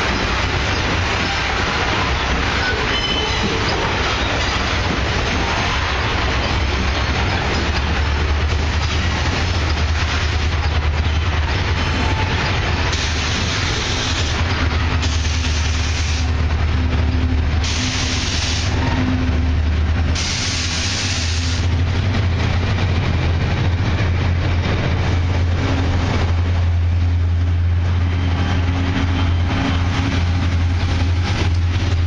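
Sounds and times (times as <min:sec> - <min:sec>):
locomotive engine drone: 0:00.0 - 0:32.0
hissing bursts: 0:12.9 - 0:16.4, 0:17.6 - 0:18.8.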